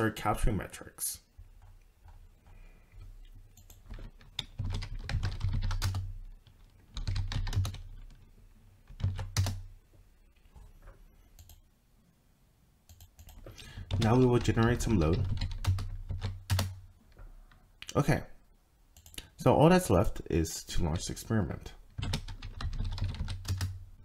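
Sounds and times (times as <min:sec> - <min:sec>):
computer keyboard typing: 0:03.5 - 0:08.2, 0:08.8 - 0:09.6, 0:11.4 - 0:11.6, 0:12.9 - 0:16.8, 0:19.0 - 0:19.3, 0:21.9 - 0:23.8.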